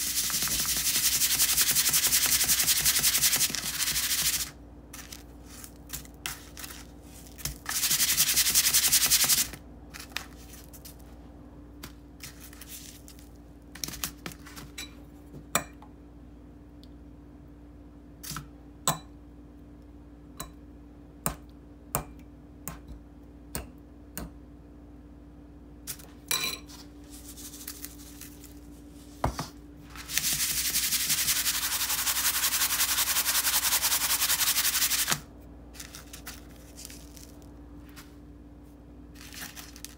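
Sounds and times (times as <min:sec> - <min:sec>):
breadcrumbs rattling on paper plate: 0:00.0 - 0:10.6, 0:29.9 - 0:37.5, 0:39.2 - 0:39.9.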